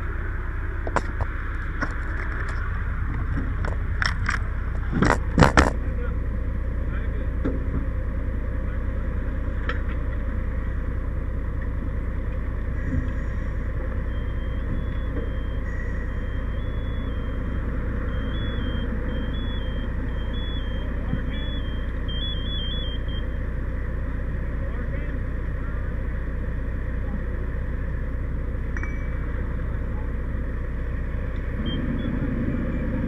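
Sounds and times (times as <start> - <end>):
fire truck engine and road rumble: 0.0 - 33.0
high electronic beep: 13.0 - 23.3.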